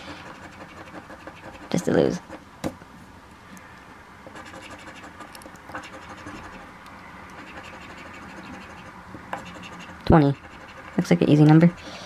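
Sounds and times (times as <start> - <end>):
coin scratching lottery ticket: 0.0 - 2.4, 4.3 - 6.6, 7.3 - 11.4.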